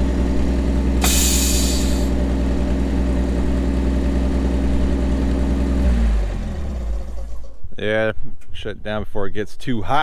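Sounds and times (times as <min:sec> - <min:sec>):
truck engine idling: 0:00.0 - 0:08.7
hiss of air: 0:01.0 - 0:02.1.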